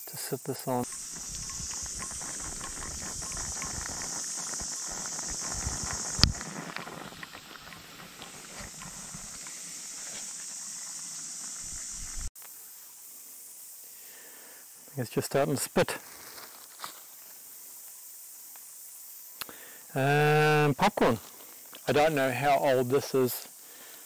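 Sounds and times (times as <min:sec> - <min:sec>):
wood fire crackling: 0:00.8 - 0:12.3.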